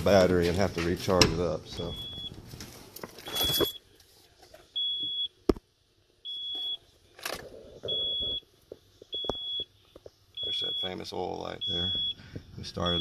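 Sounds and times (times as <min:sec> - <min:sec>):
car warning chime beeping: 0:10.4 - 0:12.2, 0:12.8 - 0:13.0.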